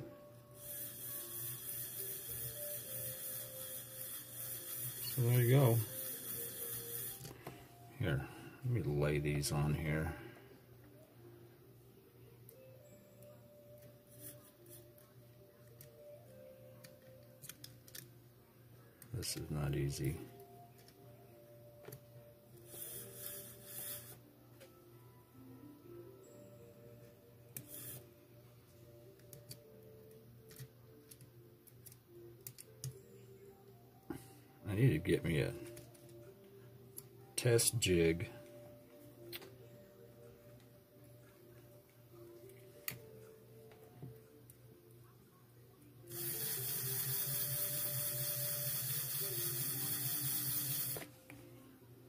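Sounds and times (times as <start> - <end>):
faint background music: 0.0 - 52.0
model train motor whirring: 0.6 - 7.3, 22.7 - 24.2, 46.1 - 51.0.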